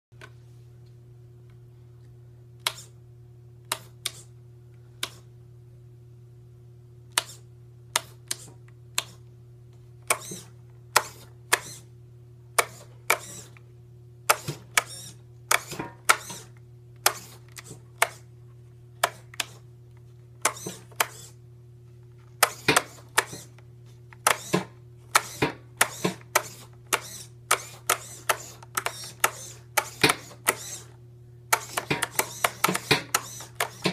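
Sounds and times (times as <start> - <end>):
steady low hum: 0.2 - 33.9
switch clicks on radio transmitter: 24.2 - 30.9, 31.5 - 33.9.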